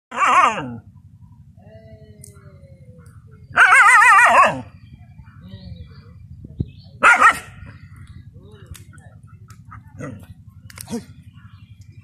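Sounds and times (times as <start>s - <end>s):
dog barking: 3.5s - 4.7s, 7.0s - 7.6s.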